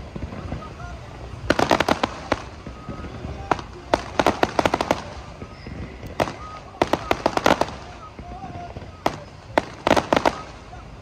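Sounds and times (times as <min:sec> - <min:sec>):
fireworks bangs: 0:00.0 - 0:11.0
fireworks cracking and popping: 0:00.0 - 0:11.0.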